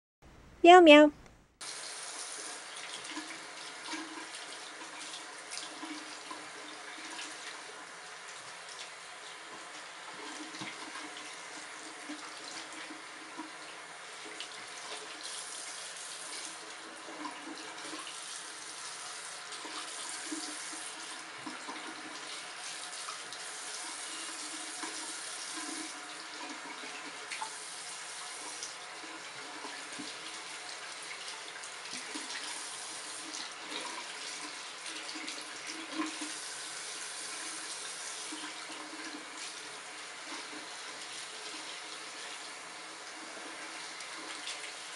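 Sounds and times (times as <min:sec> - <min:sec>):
faucet running into sink: 0:09.5 - 0:44.9.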